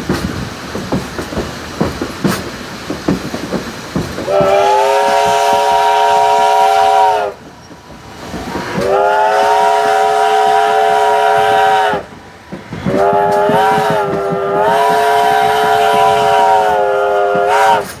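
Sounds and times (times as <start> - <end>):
rumble of moving train: 0.0 - 18.0
steam whistle blasts: 4.3 - 7.4, 8.8 - 12.1, 12.9 - 18.0.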